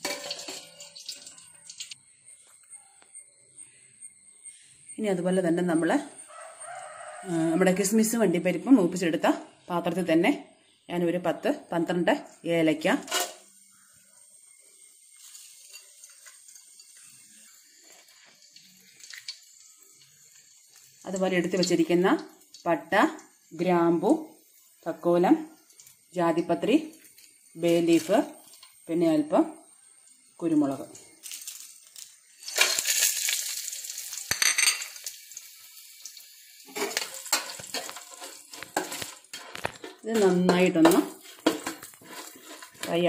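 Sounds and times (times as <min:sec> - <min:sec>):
pods sizzling in hot oil: 0:00.0 - 0:02.8, 0:06.2 - 0:07.9, 0:12.4 - 0:43.0.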